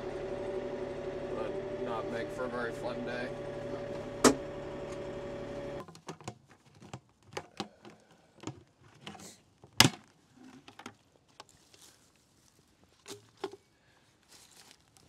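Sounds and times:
tractor diesel engine running: 0:00.0 - 0:05.8.

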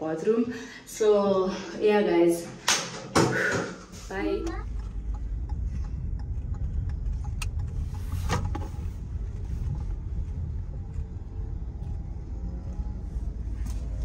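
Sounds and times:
road and engine rumble: 0:03.9 - 0:14.0.

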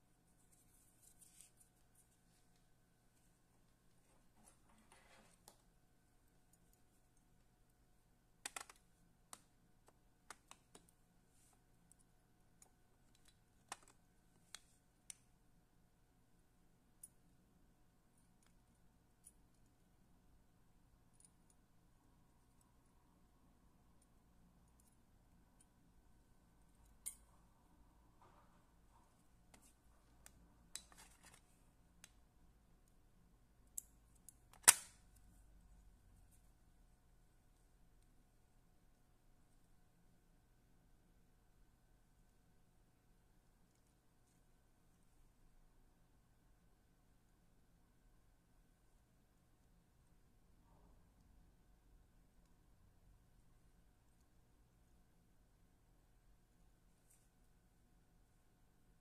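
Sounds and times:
faint steady hum: 0:00.0 - 0:59.0
light clicks and taps of tools: 0:08.4 - 0:15.3, 0:18.2 - 0:19.8, 0:26.6 - 0:27.4.

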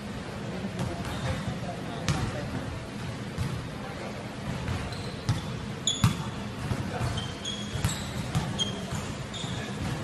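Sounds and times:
sneaker squeaks: 0:00.8 - 0:02.4, 0:04.5 - 0:10.0.

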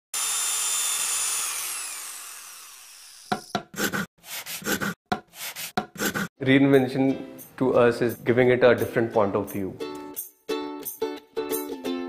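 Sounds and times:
power tool whining: 0:00.1 - 0:03.5.

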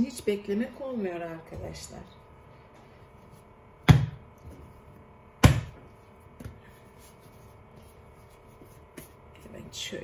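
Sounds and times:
dough slapped onto countertop: 0:05.4 - 0:05.8.

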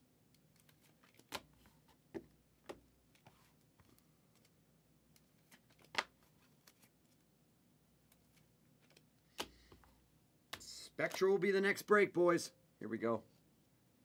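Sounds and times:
handling trading cards and packs: 0:00.3 - 0:07.3, 0:08.0 - 0:11.5.

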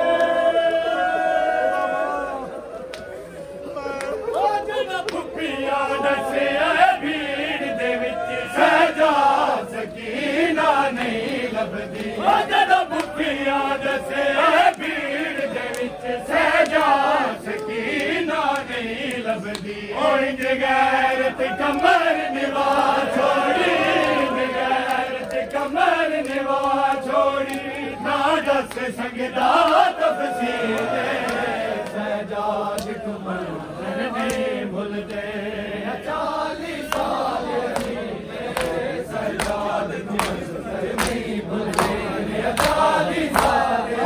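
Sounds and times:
men chanting a lament: 0:00.0 - 0:44.0.

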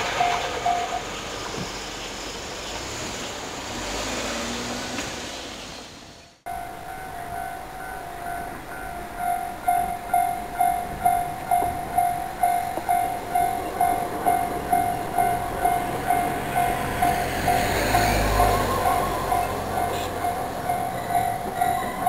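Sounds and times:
passing train rumble: 0:00.0 - 0:22.0
level crossing bell ringing: 0:06.5 - 0:22.0.

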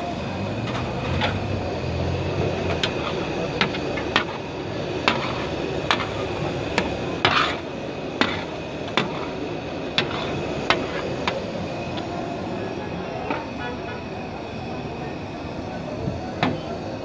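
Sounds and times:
steady background noise: 0:00.0 - 0:17.0
metal spatula clanking on griddle: 0:05.0 - 0:06.2, 0:06.8 - 0:07.6, 0:08.2 - 0:09.4, 0:10.0 - 0:11.4.

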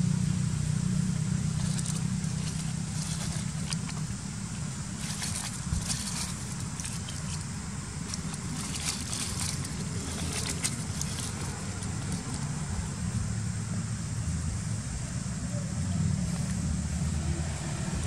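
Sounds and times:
low background rumble: 0:00.0 - 0:18.0
leaves crackling and rustling: 0:01.4 - 0:13.2.

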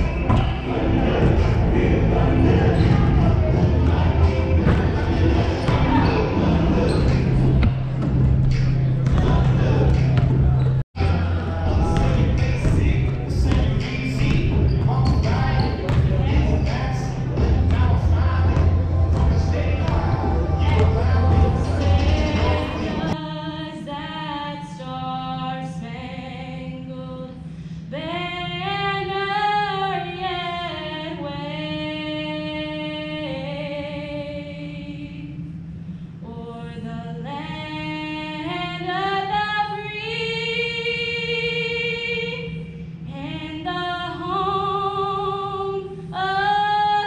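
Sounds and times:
low hum: 0:00.0 - 0:23.2
girl singing into microphone: 0:21.9 - 0:35.3, 0:36.2 - 0:47.0.

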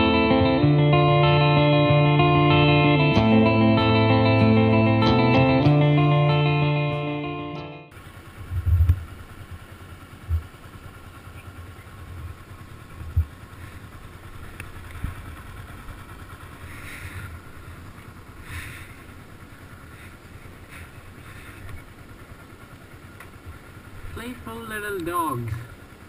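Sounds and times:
motorcycle engine pulling away: 0:07.9 - 0:24.2
short low thumps: 0:08.5 - 0:09.0.

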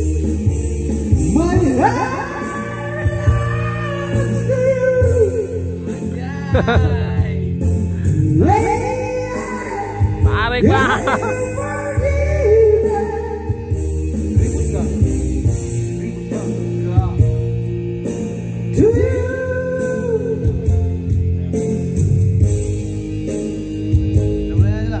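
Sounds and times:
amplified backing music with bass: 0:00.0 - 0:25.0
man singing into a microphone: 0:01.3 - 0:07.6, 0:08.3 - 0:13.8, 0:18.7 - 0:20.7.

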